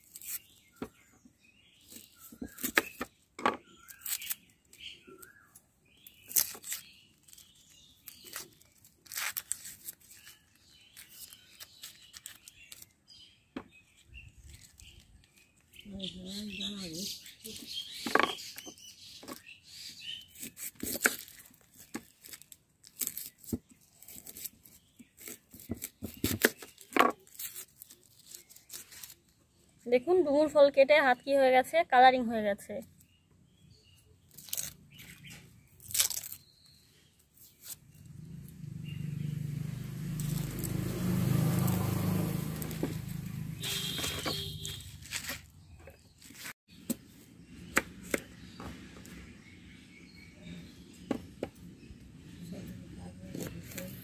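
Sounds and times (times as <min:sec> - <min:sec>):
knife cutting onion: 0:20.2 - 0:21.5, 0:23.0 - 0:29.2
vehicle engine rumbling past: 0:37.8 - 0:45.2.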